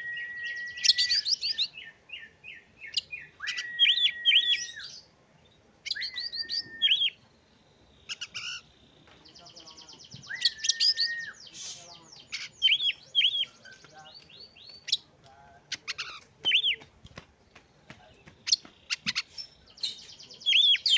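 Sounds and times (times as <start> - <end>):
bird whistling song: 0.0 - 5.1, 5.8 - 7.2, 10.0 - 15.0, 15.8 - 16.8, 18.4 - 20.9.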